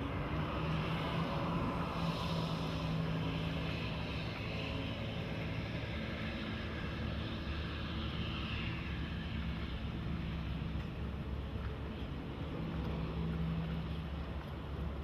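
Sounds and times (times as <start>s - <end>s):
boat engines droning: 0.0s - 15.0s.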